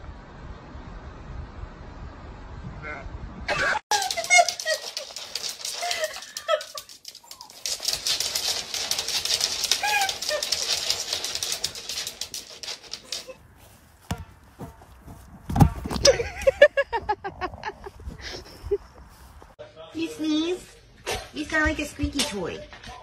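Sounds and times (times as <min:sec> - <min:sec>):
dog claws scrabbling on wooden floor: 0:03.9 - 0:13.4.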